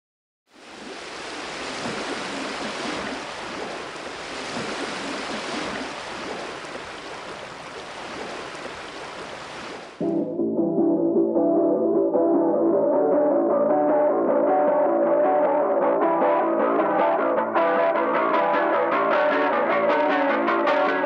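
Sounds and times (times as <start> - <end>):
waves breaking: 0.5 - 10.0
guitar music: 10.0 - 21.0.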